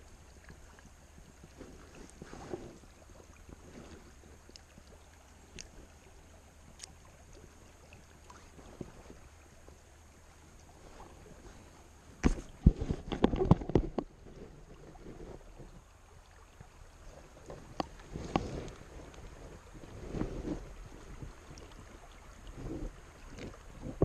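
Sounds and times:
faint river ambience: 0:00.0 - 0:24.0
handling knocks and thumps: 0:12.2 - 0:14.1.

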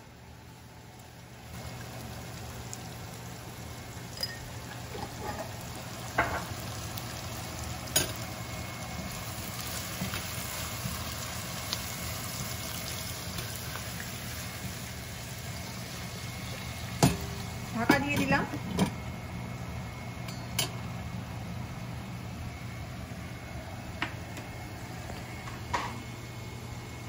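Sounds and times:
onions sizzling in oil: 0:00.2 - 0:23.6.

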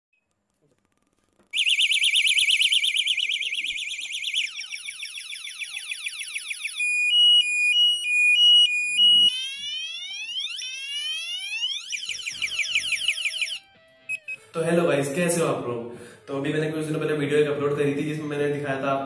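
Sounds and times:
bicycle alarm electronic siren: 0:01.5 - 0:14.6.

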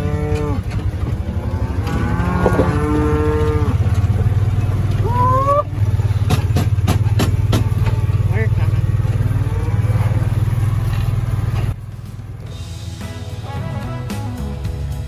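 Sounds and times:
cattle mooing: 0:00.0 - 0:06.0, 0:07.7 - 0:11.0
vehicle engine idling: 0:00.0 - 0:14.1
sharp knocks: 0:02.4 - 0:02.8, 0:06.2 - 0:08.0.

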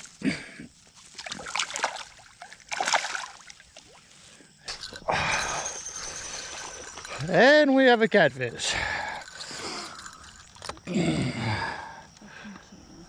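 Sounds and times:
water splashing and sloshing: 0:00.8 - 0:07.4.

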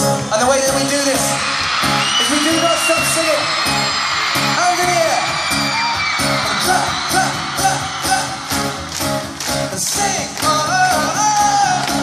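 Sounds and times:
live acoustic guitar music: 0:00.0 - 0:12.0
person singing: 0:09.6 - 0:12.0.

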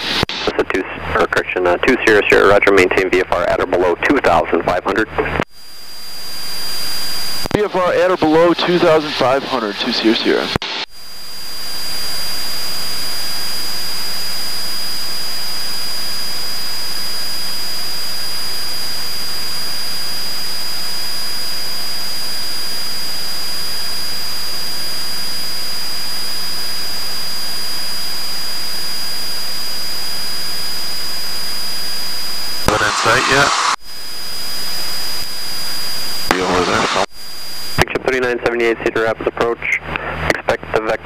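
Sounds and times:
small plane cockpit drone: 0:00.0 - 0:41.0
thin high whine: 0:05.2 - 0:38.0.

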